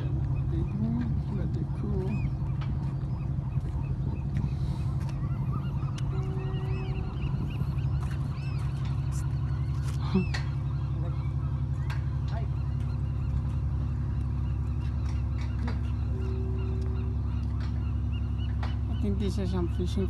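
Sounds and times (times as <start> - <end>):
bird calls: 0.0 - 20.0
low mechanical drone: 0.0 - 20.0.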